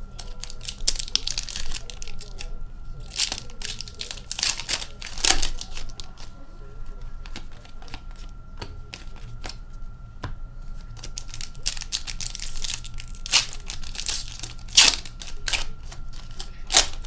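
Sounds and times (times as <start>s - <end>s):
foil wrapper crinkling and tearing: 0.1s - 6.3s, 11.0s - 17.0s
trading cards clicking: 0.2s - 6.3s, 11.0s - 17.0s.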